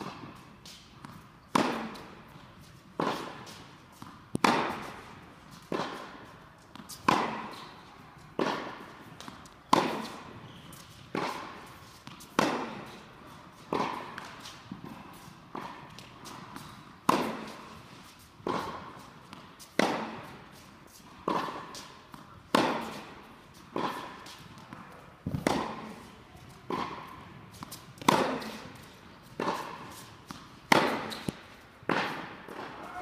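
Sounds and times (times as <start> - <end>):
rackets striking tennis ball: 0.0 - 33.0
ball bouncing on hard court: 4.3 - 4.9, 23.8 - 26.1, 26.7 - 33.0.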